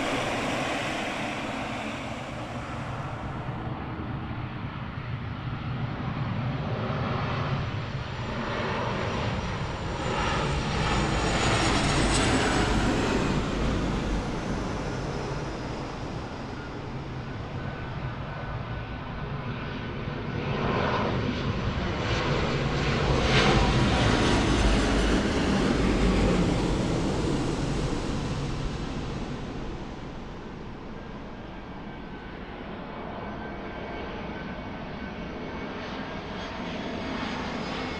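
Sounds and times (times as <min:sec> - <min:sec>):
high engine whine: 0:00.0 - 0:04.5
airliner engines passing: 0:00.0 - 0:37.9.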